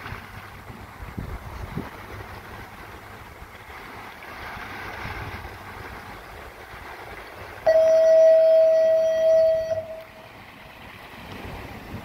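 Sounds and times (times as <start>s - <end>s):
water: 0.0s - 12.0s
wind: 0.0s - 12.0s
loud steady tone: 7.6s - 10.3s.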